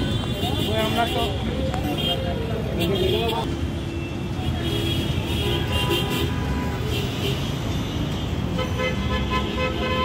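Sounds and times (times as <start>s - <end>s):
traffic rumble: 0.0s - 10.0s.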